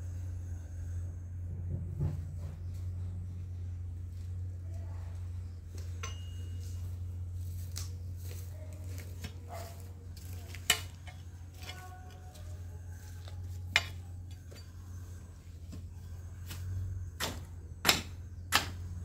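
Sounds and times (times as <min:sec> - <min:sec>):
steady low hum: 0:00.0 - 0:19.0
light clinks and knocks: 0:05.8 - 0:06.8, 0:13.2 - 0:15.0.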